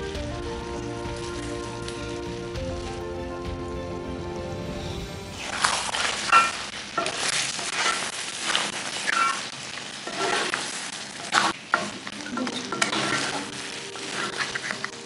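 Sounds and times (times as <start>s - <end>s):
food sizzling: 0.0s - 15.0s
spatula scraping a wok: 5.3s - 15.0s.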